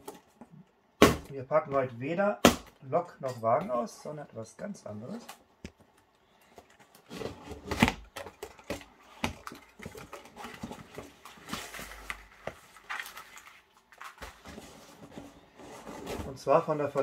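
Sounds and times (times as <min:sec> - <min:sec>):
cardboard box scraping and knocking: 0:14.4 - 0:16.5.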